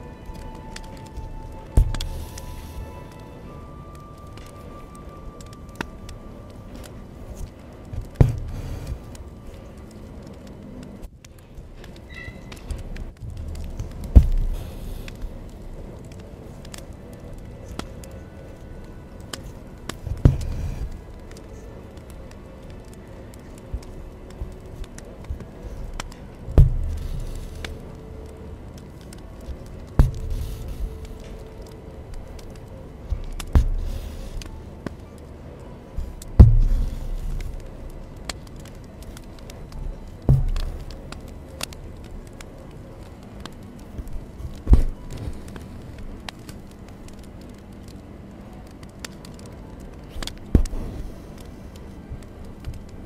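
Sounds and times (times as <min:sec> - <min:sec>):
faint scratchy ticks: 0:00.0 - 0:53.0
low thumps: 0:00.6 - 0:03.0, 0:07.2 - 0:09.4, 0:12.6 - 0:16.8, 0:19.3 - 0:21.4, 0:22.8 - 0:34.6, 0:36.0 - 0:41.3
dull thumps: 0:07.4 - 0:09.2, 0:12.6 - 0:15.2, 0:19.9 - 0:21.0, 0:23.7 - 0:27.9, 0:29.1 - 0:31.2, 0:36.0 - 0:37.7, 0:40.2 - 0:41.2, 0:44.0 - 0:45.5.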